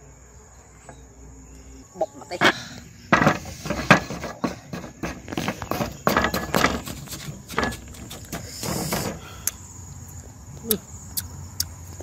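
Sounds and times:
pestle pounding in mortar: 3.7 - 9.2.

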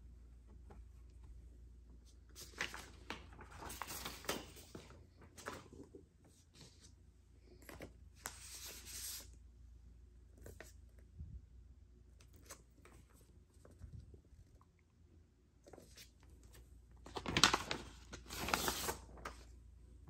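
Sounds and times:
paper sleeves rustling and sliding: 2.0 - 9.4, 17.1 - 19.5.

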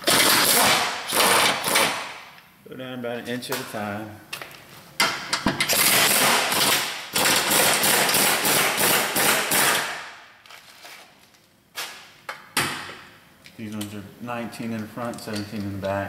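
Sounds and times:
air wrench rattling: 5.4 - 8.2.

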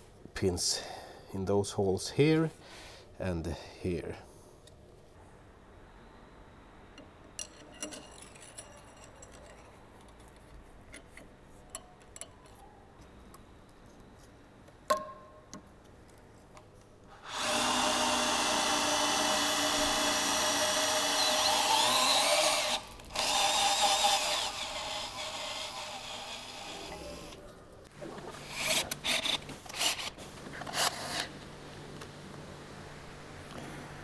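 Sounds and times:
cordless drill boring into metal: 17.2 - 27.4.

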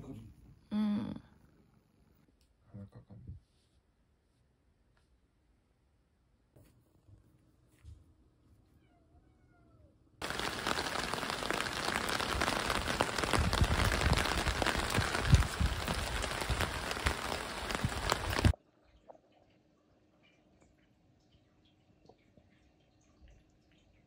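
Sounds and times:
steady rain hiss: 10.2 - 18.6.

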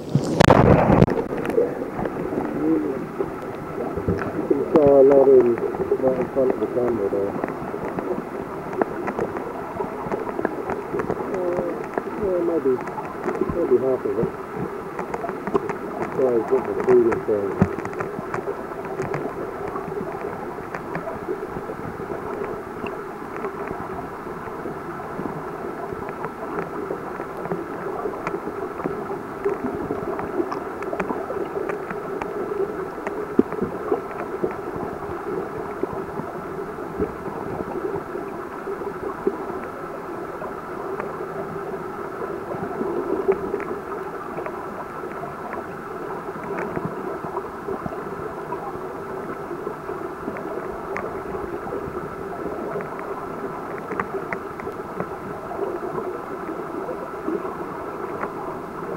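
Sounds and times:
muffled underwater noise: 0.0 - 58.9
small clicks: 14.9 - 21.1, 52.6 - 55.1.

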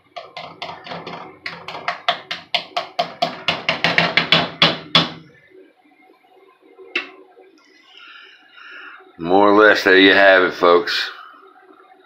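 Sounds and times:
spatula tapping frying pan: 0.1 - 5.2.

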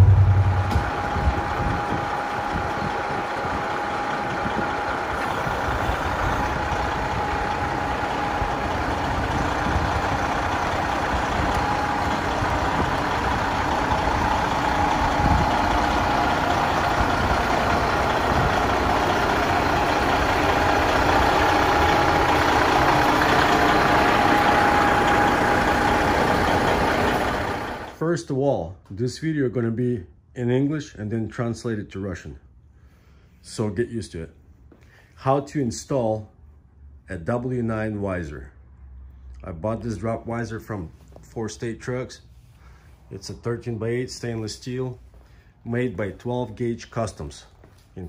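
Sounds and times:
steady whine: 0.0 - 28.0
truck diesel engine running: 0.0 - 28.0.

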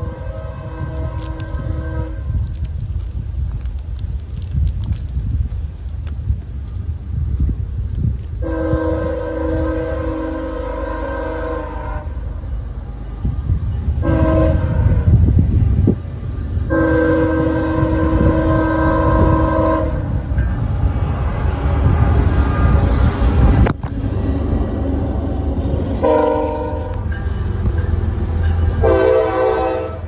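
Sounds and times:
locomotive air horn blasts: 0.0 - 2.4, 8.4 - 12.3, 14.0 - 15.2, 16.7 - 20.2, 26.0 - 27.1, 28.8 - 30.0
locomotive engines rumbling: 0.0 - 30.0.

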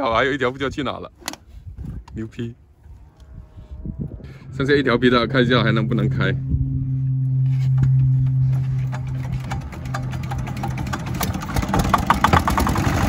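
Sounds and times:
diesel boat engine humming: 4.4 - 13.0
fast regular engine knocking: 8.8 - 13.0.

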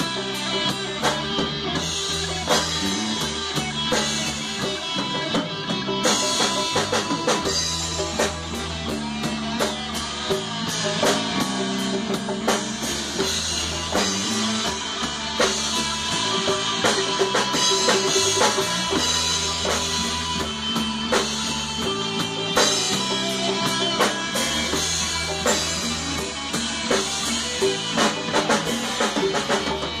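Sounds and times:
distorted electric guitar: 0.0 - 30.0
drum kit playing: 0.0 - 30.0
electric bass: 0.0 - 30.0.

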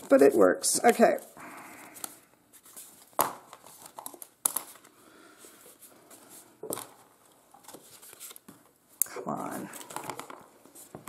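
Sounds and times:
paper sheets rustling: 0.0 - 8.7.

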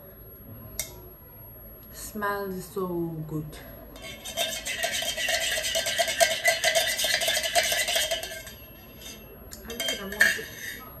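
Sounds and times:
spoon clinking in a cup: 4.0 - 11.0.

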